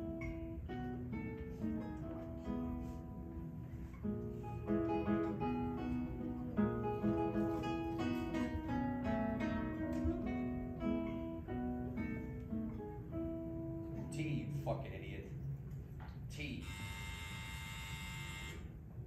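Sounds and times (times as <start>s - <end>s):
acoustic guitar plucking: 0.0s - 15.1s.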